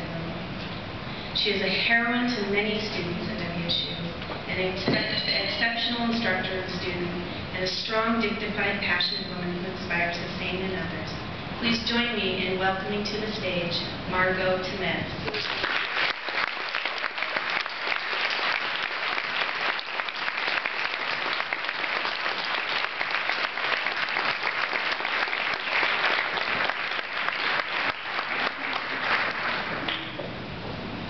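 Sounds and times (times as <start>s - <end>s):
audience applauding: 15.3s - 30.1s.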